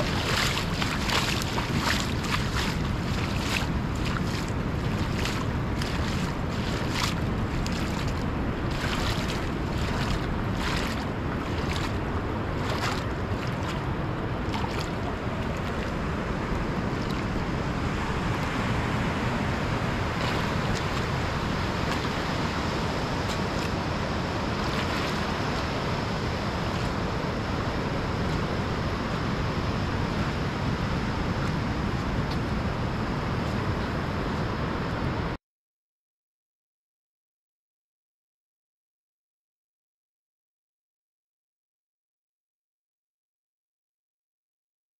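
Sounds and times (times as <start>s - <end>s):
ocean surf washing: 0.0s - 35.3s
wind on microphone: 0.0s - 35.4s.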